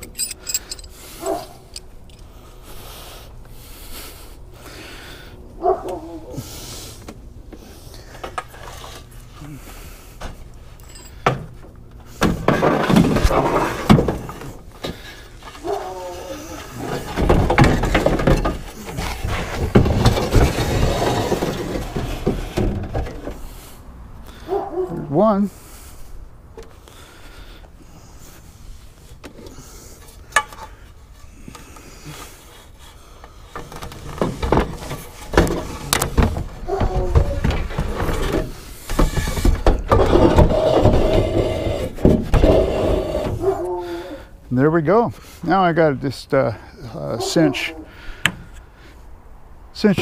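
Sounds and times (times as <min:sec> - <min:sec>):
light clinks of hardware: 0:00.0 - 0:01.0
aluminum ladders clattering and scraping: 0:10.8 - 0:23.6, 0:33.5 - 0:43.6.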